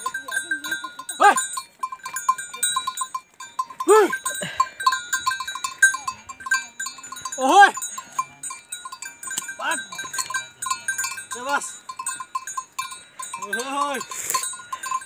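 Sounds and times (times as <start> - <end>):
man shouting calls: 1.1 - 1.5, 3.8 - 4.3, 7.4 - 7.8, 9.6 - 10.1, 11.3 - 11.8, 13.4 - 14.1.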